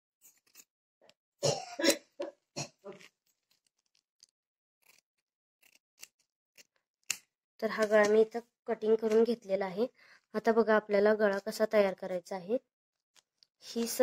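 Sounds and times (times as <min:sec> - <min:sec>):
person coughing: 0:01.4 - 0:02.8
scissors cutting fabric: 0:04.8 - 0:07.3.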